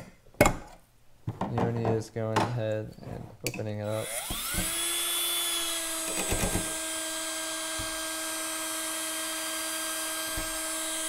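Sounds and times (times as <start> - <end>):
drill motor whining: 3.9 - 11.0.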